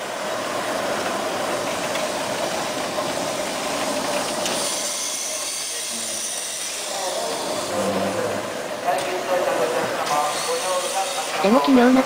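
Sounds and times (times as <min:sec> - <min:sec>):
steady hiss of steam: 0:00.0 - 0:07.8
steam locomotive rolling past: 0:00.0 - 0:12.0.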